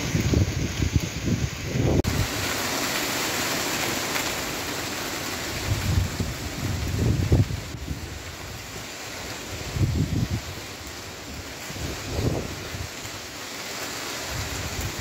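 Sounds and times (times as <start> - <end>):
wind gusts buffeting microphone: 0.0 - 2.7, 5.3 - 13.3, 14.2 - 15.0
wind and rain hiss: 0.0 - 15.0.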